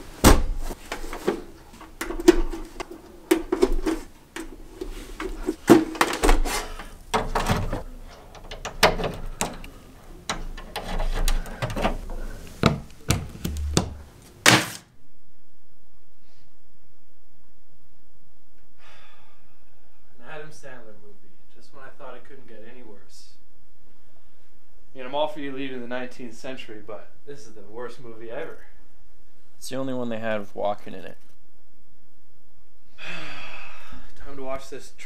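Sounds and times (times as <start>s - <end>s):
knocks and scrapes of handling: 0.0s - 14.8s
cables clicking into jacks: 0.9s - 14.4s.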